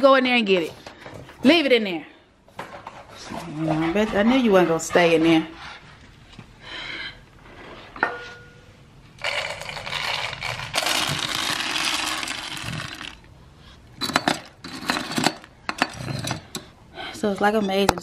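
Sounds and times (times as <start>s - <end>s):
dry kibble rattling into bowl: 9.2s - 13.2s.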